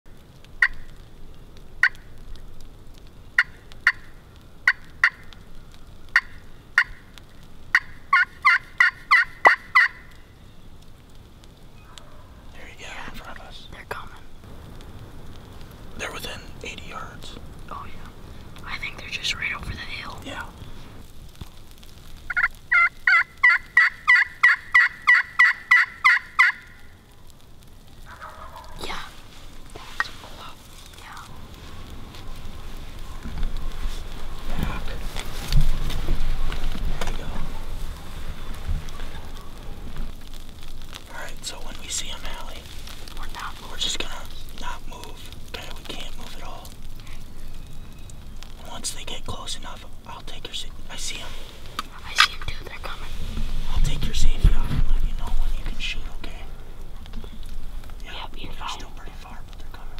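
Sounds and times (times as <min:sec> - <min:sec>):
turkey clucking and yelping: 0:03.4 - 0:05.4, 0:06.1 - 0:07.1, 0:07.7 - 0:10.2, 0:22.3 - 0:26.9, 0:28.0 - 0:28.8.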